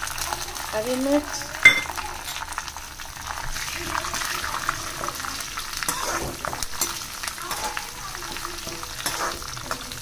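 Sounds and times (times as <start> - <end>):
food sizzling in hot oil: 0.0 - 10.0
metal spatula scraping a pan: 3.4 - 10.0.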